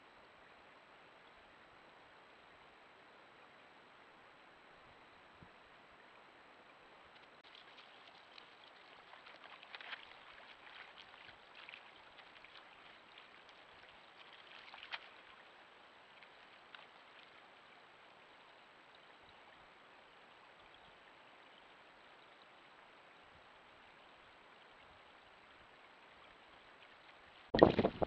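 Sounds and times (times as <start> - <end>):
water splashing and gurgling: 7.2 - 21.6, 25.0 - 28.0.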